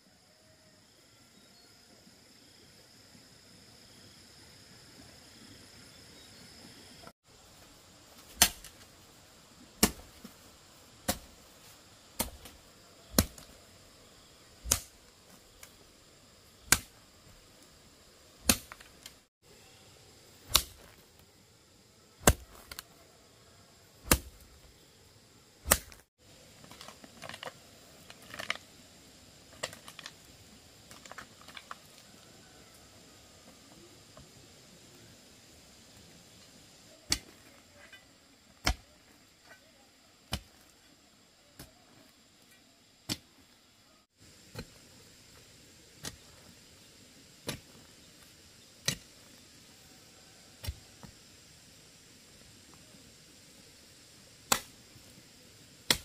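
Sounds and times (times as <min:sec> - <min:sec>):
hoe striking hard earth: 0:08.2 - 0:08.9, 0:09.8 - 0:10.4, 0:11.0 - 0:11.4, 0:12.2 - 0:13.5, 0:14.6 - 0:15.0, 0:16.6 - 0:17.0, 0:18.4 - 0:19.1, 0:20.5 - 0:21.0, 0:22.2 - 0:22.8, 0:24.1 - 0:24.5, 0:25.6 - 0:26.1, 0:38.6 - 0:38.9, 0:44.5 - 0:44.9, 0:45.9 - 0:46.6, 0:47.4 - 0:48.0, 0:48.7 - 0:49.3, 0:50.6 - 0:51.2.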